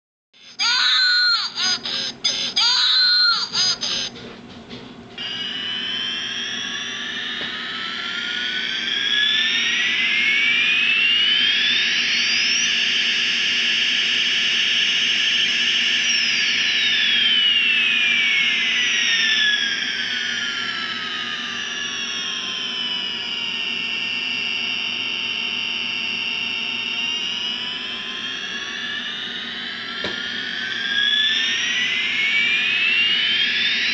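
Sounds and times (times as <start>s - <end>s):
electronic jet whine: 0.4s - 33.9s
choppy electronic sound: 1.6s - 4.1s.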